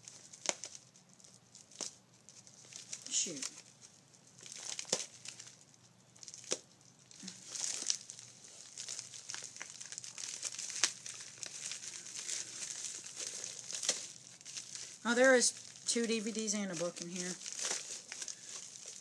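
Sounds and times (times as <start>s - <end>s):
envelope crinkling: 0.0s - 19.0s
sharp paper rips: 2.7s - 3.7s, 7.2s - 19.0s.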